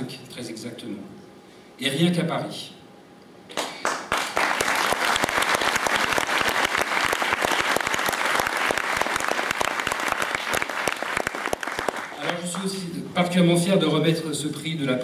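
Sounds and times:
audience applauding: 3.5s - 12.8s.

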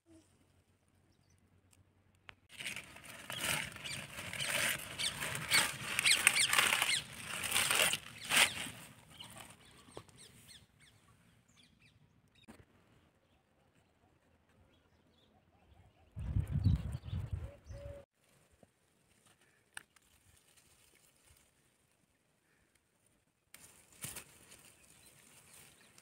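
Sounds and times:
spinach leaves rustling and crackling: 2.5s - 9.8s, 18.2s - 22.8s, 23.5s - 26.0s.

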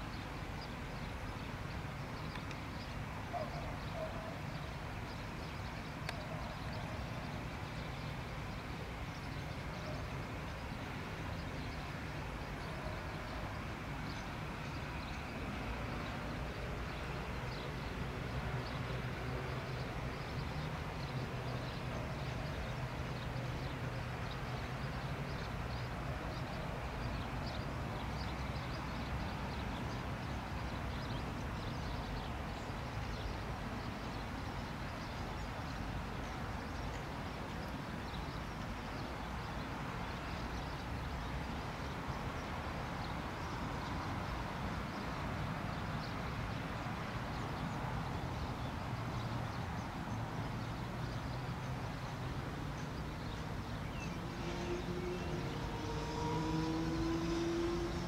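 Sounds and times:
rising engine whine: 54.2s - 58.0s.

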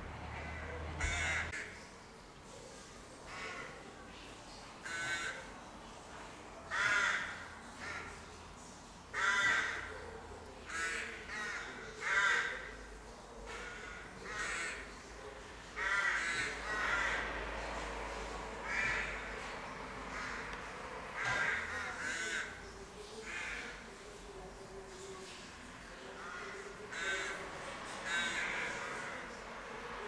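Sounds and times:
rooks cawing: 0.3s - 1.8s, 4.8s - 5.5s, 6.7s - 8.2s, 9.1s - 9.9s, 10.7s - 12.8s, 13.5s - 15.0s, 15.8s - 17.4s, 18.6s - 22.6s, 23.2s - 23.9s, 26.1s - 29.4s.

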